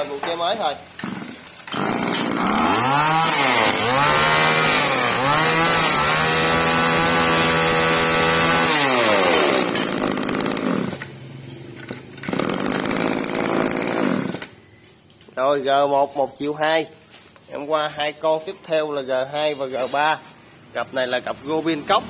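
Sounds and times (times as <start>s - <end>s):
brush cutter engine revving: 1.0s - 11.2s, 12.1s - 14.6s.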